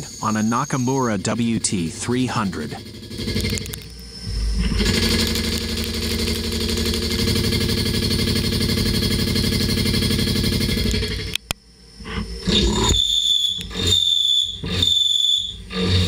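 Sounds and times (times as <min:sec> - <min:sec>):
turn-mill machine running: 0:00.0 - 0:11.4.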